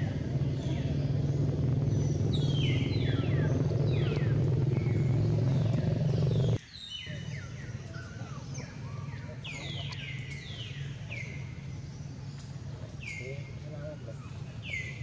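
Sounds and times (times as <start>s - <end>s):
low engine rumble: 0.0s - 6.6s
high falling chirps: 0.3s - 6.6s.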